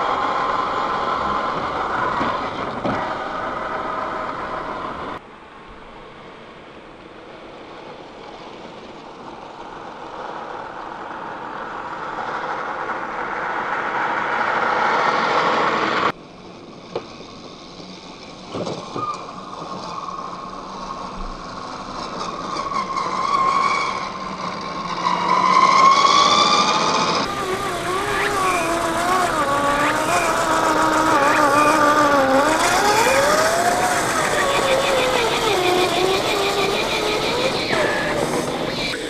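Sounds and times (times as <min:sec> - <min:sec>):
toy truck motor whining: 0:25.1 - 0:39.0.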